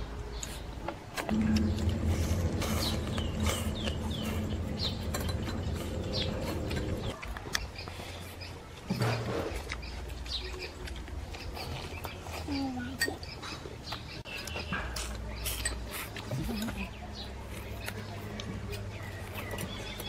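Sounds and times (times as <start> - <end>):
low steady hum: 1.3 - 7.2
bird chirping: 1.3 - 15.8, 16.4 - 20.0.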